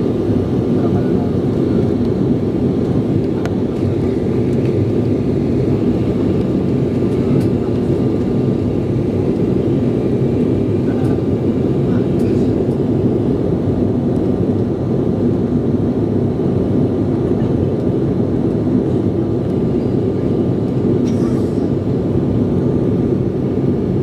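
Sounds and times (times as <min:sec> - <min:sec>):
jet engine and airflow roar: 0:00.0 - 0:24.0.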